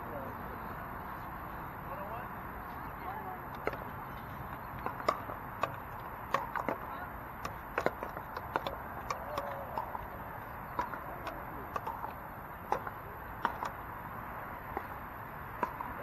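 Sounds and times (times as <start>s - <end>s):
steady background hiss: 0.0s - 16.0s
paddles striking plastic ball: 4.8s - 10.1s, 10.7s - 13.8s, 15.6s - 16.0s.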